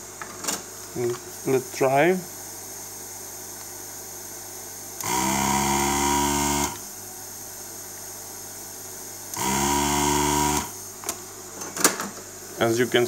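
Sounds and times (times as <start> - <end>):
vacuum pump motor humming: 5.0 - 7.0, 9.1 - 11.1.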